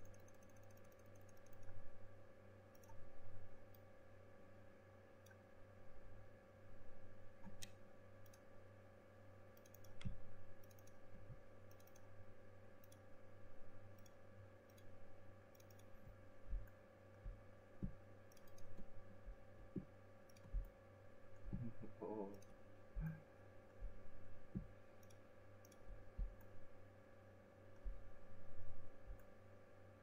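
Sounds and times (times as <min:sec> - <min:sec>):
computer mouse clicks: 0:00.0 - 0:01.8, 0:02.7 - 0:03.9, 0:07.4 - 0:08.5, 0:09.5 - 0:12.2, 0:12.8 - 0:13.1, 0:13.9 - 0:20.8, 0:23.7 - 0:26.6
low electrical hum: 0:00.0 - 0:30.0.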